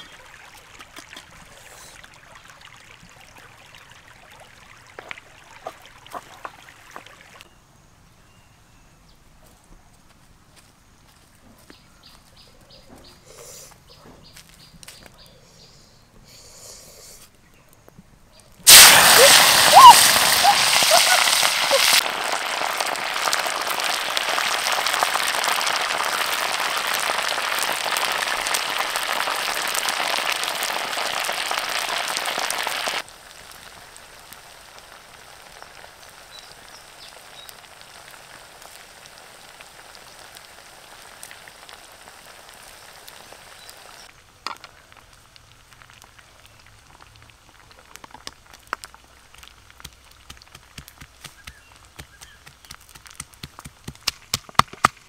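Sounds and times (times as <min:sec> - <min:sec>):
frying in hot oil: 0:00.0 - 0:07.5, 0:18.6 - 0:55.0.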